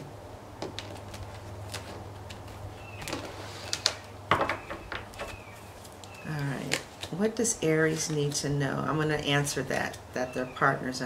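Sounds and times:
cards shuffled on wooden table: 0:00.6 - 0:07.2.

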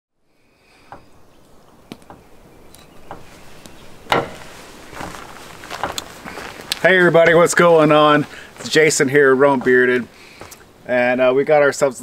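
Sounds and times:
faint steady hiss: 0:00.2 - 0:12.0
light knocks and clicks: 0:01.9 - 0:05.1.

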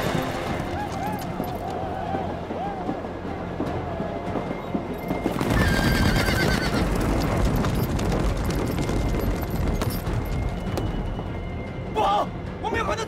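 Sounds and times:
hoofbeats galloping through snow: 0:00.0 - 0:11.2
horse whinnying: 0:05.4 - 0:07.3.

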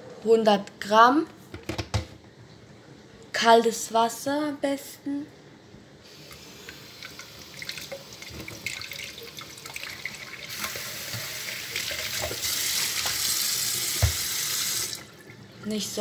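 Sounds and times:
tap water running into plastic jug: 0:06.6 - 0:15.2.

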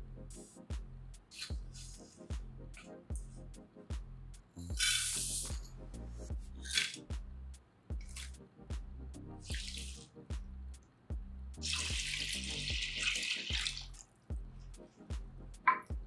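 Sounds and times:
background music with a beat: 0:00.0 - 0:16.0
water splashing into a dish: 0:09.5 - 0:10.0, 0:11.6 - 0:14.0.

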